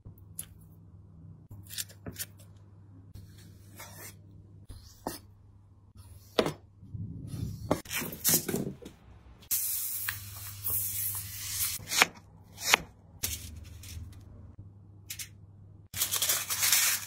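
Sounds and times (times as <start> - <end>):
aluminium foil crinkling: 15.9 - 17.0.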